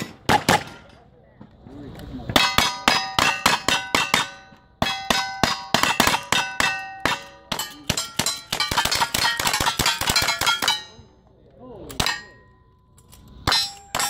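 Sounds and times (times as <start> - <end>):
steel target plate clanging: 2.4 - 11.2, 11.9 - 14.0
rapid gunfire: 8.2 - 10.7.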